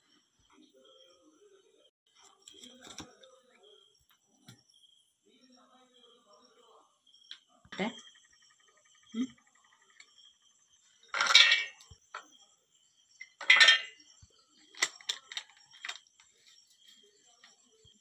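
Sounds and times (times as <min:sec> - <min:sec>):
glass clinking on steel: 0:11.1 - 0:12.3, 0:13.2 - 0:14.0.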